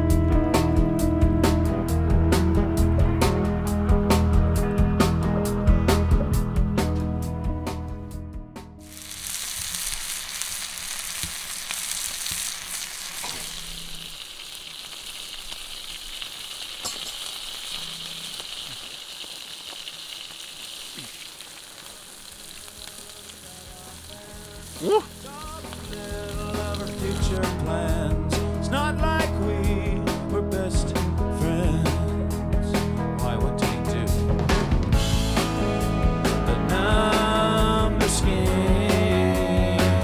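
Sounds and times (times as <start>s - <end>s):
food sizzling in a pan: 8.8s - 27.6s.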